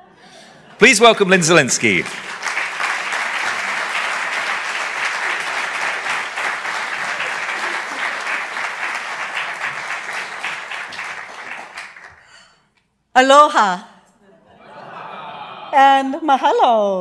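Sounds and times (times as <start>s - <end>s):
audience applauding: 0.8s - 12.5s.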